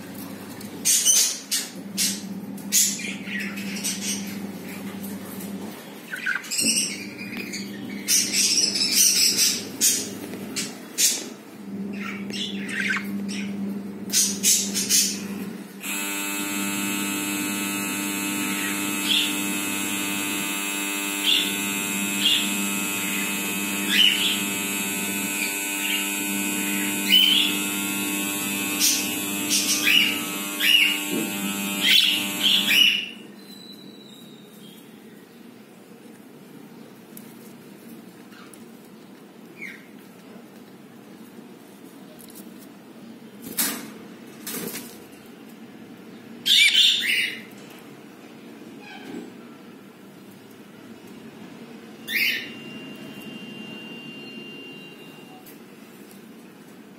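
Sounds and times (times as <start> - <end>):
electrical hum: 0.0 - 33.4, 50.0 - 56.9.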